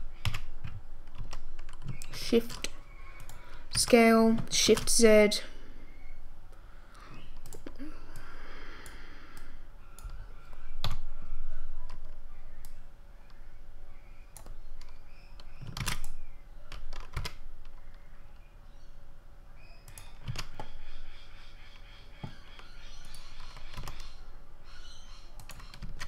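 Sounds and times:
computer keyboard and mouse clicks: 0.2 - 5.0, 7.2 - 9.0, 10.0 - 11.1, 14.3 - 18.0, 19.9 - 20.8, 22.2 - 24.2, 25.4 - 26.0.

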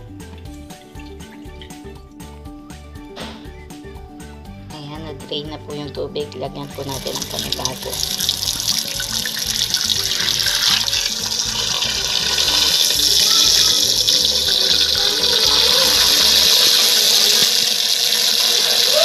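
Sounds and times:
background music: 0.0 - 19.0
tap water splashing into pot: 6.9 - 14.9.

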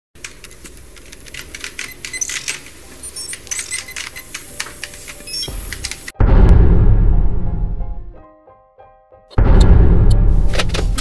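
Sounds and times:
keystroke clicks: 0.2 - 6.1.

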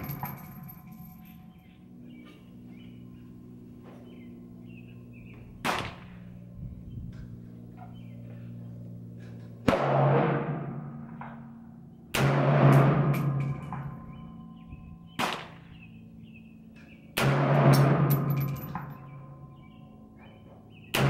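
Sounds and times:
steady low hum: 0.0 - 21.0
pistol shots: 5.6 - 6.2, 15.2 - 15.7, 17.2 - 18.9.

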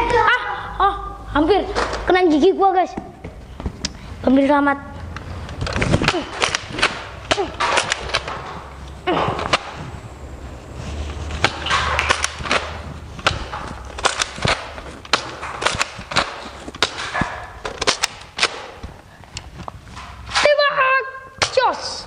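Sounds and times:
short rustling: 5.3 - 17.6.

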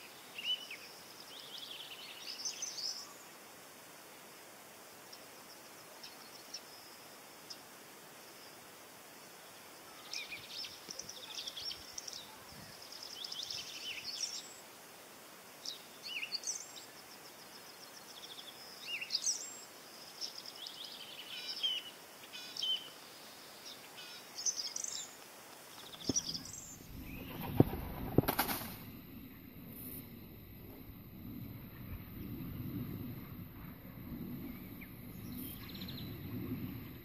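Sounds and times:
songbirds chirping: 0.0 - 3.5, 5.0 - 37.0
rush of noise: 26.0 - 37.0.

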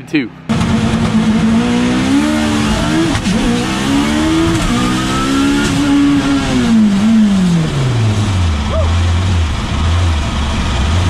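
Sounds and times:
car engine from inside cabin: 0.4 - 11.0.

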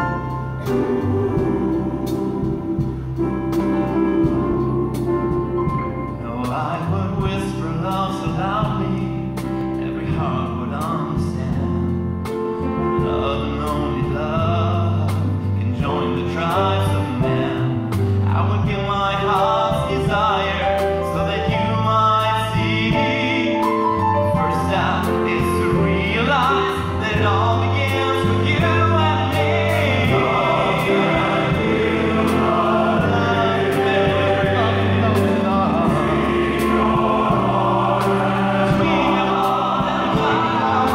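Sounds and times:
men's chorus singing: 0.0 - 5.5, 27.9 - 40.9
instrumental accompaniment: 0.0 - 40.9.

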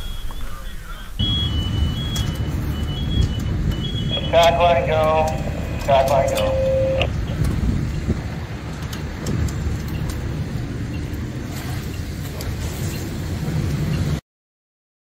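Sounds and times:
pump engine rumbling: 1.2 - 13.9
water flowing through hose: 11.4 - 13.4.

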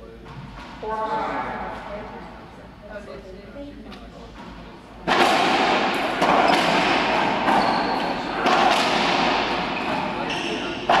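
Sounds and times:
racquetball cracks echoing: 5.0 - 11.0.

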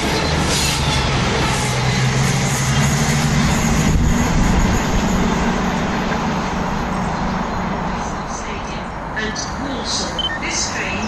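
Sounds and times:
diesel train engines droning: 0.0 - 11.0
train rushing: 0.0 - 11.0.

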